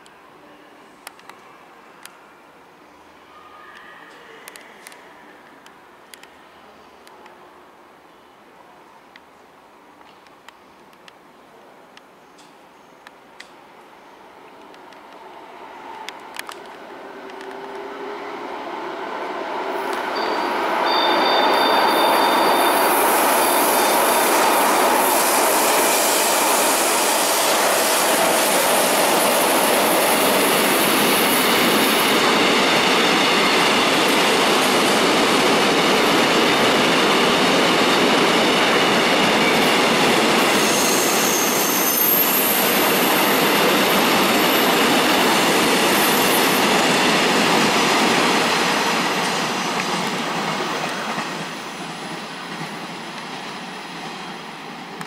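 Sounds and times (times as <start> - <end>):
freight train wheels rattling on rails: 19.7 - 55.0
high wheel squeal: 20.1 - 24.0, 40.5 - 46.8.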